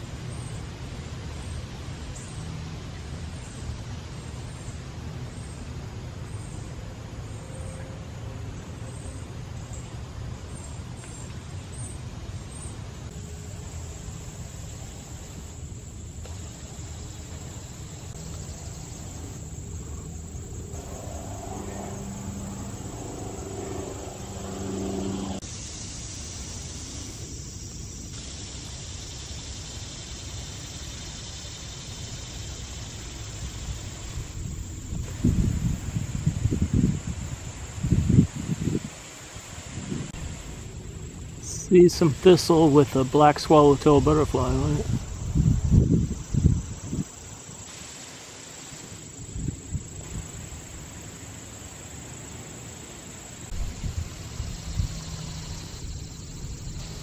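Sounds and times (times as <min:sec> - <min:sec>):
low rumble of motor traffic: 0:00.0 - 0:25.7, 0:52.1 - 0:57.0
engine hum: 0:01.7 - 0:25.6.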